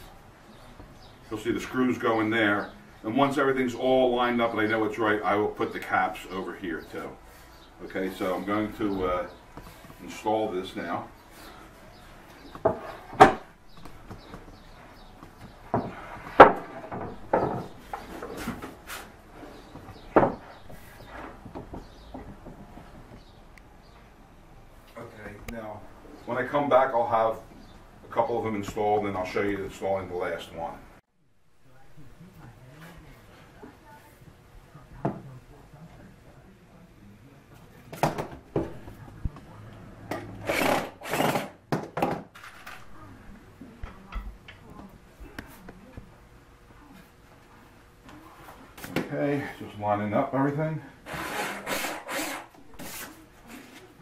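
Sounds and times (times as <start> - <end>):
wood knocks and handling: 15.2 - 18.8, 19.8 - 23.3
electric drill driving screws: 40.4 - 41.6, 51.1 - 52.5.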